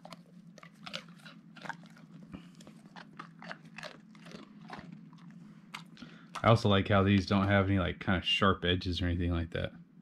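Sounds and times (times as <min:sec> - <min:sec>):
dog crunching a treat: 0:00.0 - 0:07.6.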